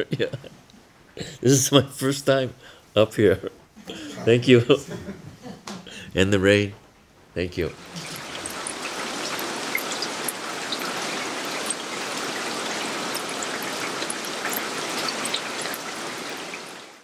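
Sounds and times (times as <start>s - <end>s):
rain falling on puddles: 7.8s - 17.0s.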